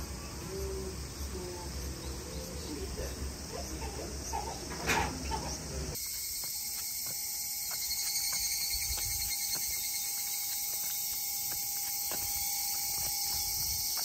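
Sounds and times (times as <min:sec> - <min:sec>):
high insect buzz: 0:05.9 - 0:14.0.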